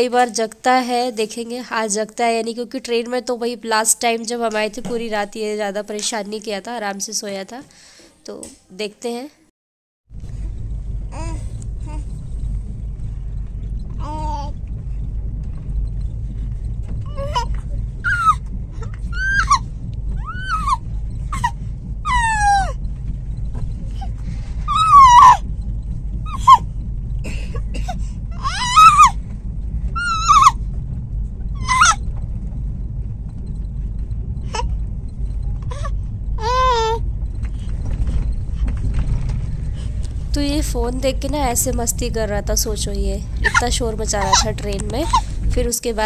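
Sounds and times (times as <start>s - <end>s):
train coach rumble: 0.0s - 8.5s, 10.1s - 46.0s
infant squealing and cooing: 18.1s - 18.4s, 19.1s - 19.6s, 20.2s - 22.7s, 24.7s - 25.4s, 26.3s - 26.6s, 28.4s - 29.2s, 30.0s - 30.6s, 31.6s - 32.0s, 35.7s - 37.0s, 43.4s - 43.6s.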